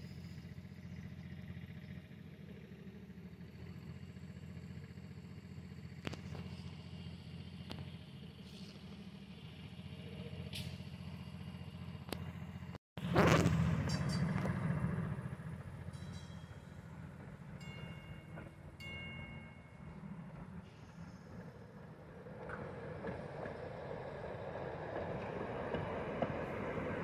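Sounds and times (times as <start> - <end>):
streetcar rumbling on rails: 0.0 - 27.0
streetcar running along track: 0.0 - 27.0
clicks of streetcar: 5.9 - 27.0.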